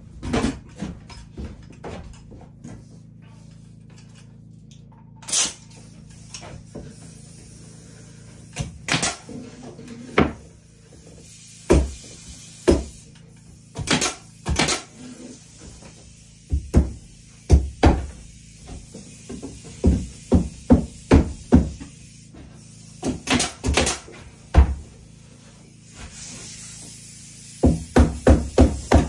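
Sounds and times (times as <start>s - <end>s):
nail gun firing into wood: 8.6s - 9.3s, 13.8s - 15.0s, 23.0s - 24.1s.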